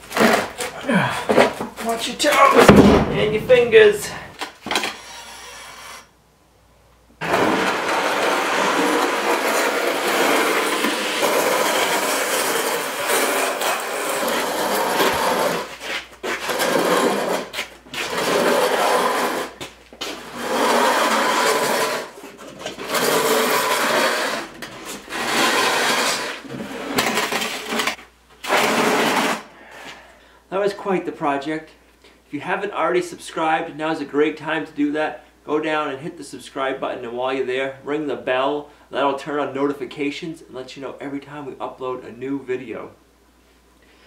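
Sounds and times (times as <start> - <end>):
slab scraping across concrete floor: 7.2 - 29.5.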